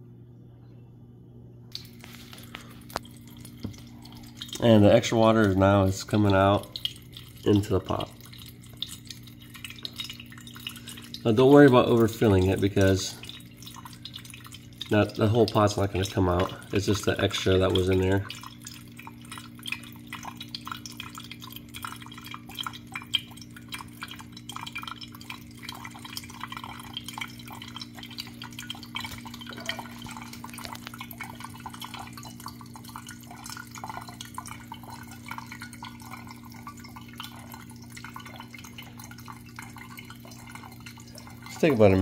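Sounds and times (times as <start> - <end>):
water trickling into glass carafe: 1.7 - 42.0.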